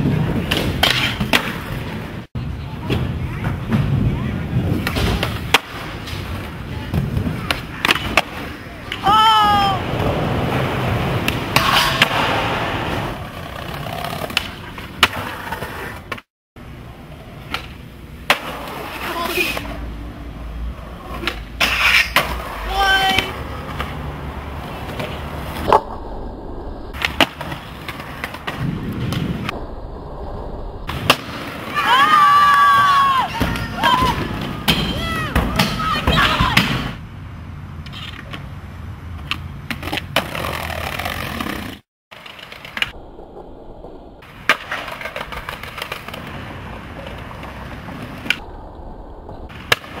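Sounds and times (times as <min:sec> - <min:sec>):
skateboard wheels rolling on concrete: 0:00.0 - 0:50.0
skateboard landing slap: 0:00.4 - 0:01.8, 0:04.8 - 0:06.3, 0:11.2 - 0:13.2, 0:17.4 - 0:18.8, 0:26.9 - 0:29.6, 0:30.9 - 0:31.8, 0:44.2 - 0:46.4, 0:49.5 - 0:50.0
person shouting: 0:09.0 - 0:09.9, 0:22.7 - 0:23.4
skateboard clacking on ground: 0:24.8 - 0:26.1, 0:44.2 - 0:48.5
skateboard snapping: 0:44.3 - 0:46.4, 0:49.3 - 0:50.0.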